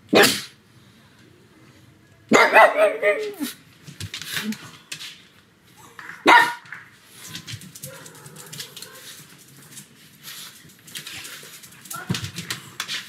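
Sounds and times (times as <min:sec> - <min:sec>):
dog barking: 0:00.1 - 0:00.5, 0:02.3 - 0:03.5, 0:06.2 - 0:06.6, 0:07.8 - 0:09.2.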